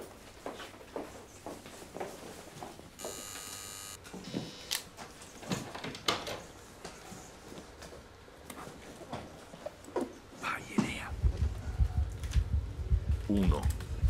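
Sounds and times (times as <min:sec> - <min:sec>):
footsteps: 0:00.3 - 0:04.5
two-tone electronic chime: 0:03.0 - 0:04.0.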